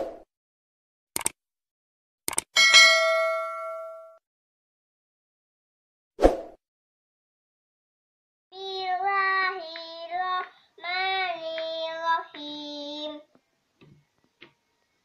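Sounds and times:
child singing: 8.5s - 13.4s.

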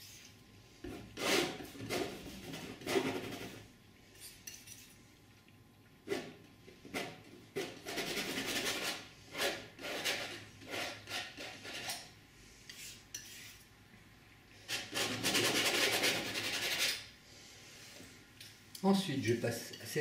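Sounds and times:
painting knife scraping canvas: 0.0s - 4.9s, 6.1s - 13.7s, 14.6s - 17.1s.

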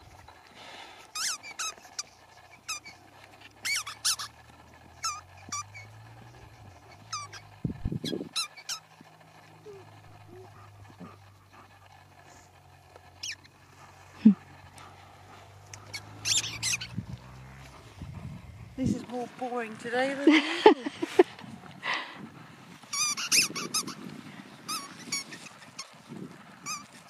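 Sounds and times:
squeaky ball squeaking: 1.2s - 3.0s, 3.6s - 4.4s, 5.0s - 8.9s, 13.2s - 13.5s, 15.8s - 17.1s, 22.9s - 24.0s, 24.7s - 25.8s, 26.6s - 26.9s.

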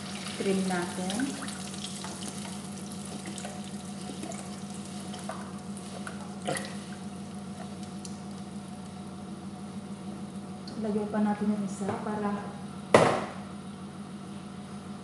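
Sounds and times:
knock: 13.0s - 13.4s.

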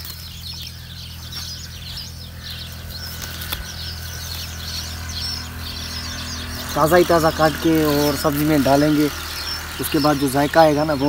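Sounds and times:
stems clicking and snapping: 0.0s - 1.6s, 2.9s - 4.5s
birds chirping: 0.0s - 11.0s
steady low hum: 0.0s - 11.0s.

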